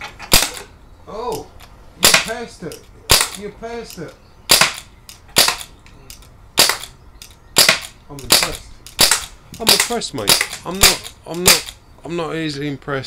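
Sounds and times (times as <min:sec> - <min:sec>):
air rifle firing: 0:00.3 - 0:00.7, 0:02.0 - 0:02.4, 0:03.1 - 0:03.5, 0:04.5 - 0:05.8, 0:06.6 - 0:07.0, 0:07.6 - 0:11.8.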